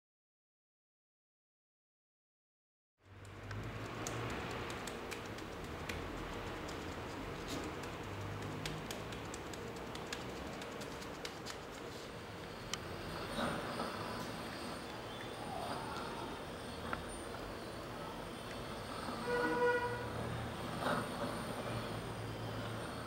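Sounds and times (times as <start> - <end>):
gloved hands tapping: 3.2 - 11.9.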